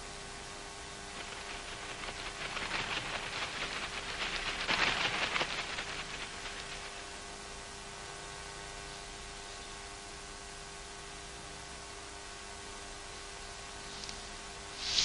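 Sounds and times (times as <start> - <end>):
rain pattering: 1.2 - 7.1.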